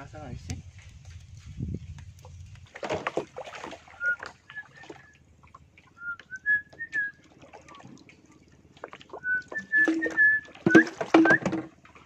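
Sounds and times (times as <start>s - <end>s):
short high whistled notes: 9.5s - 11.5s.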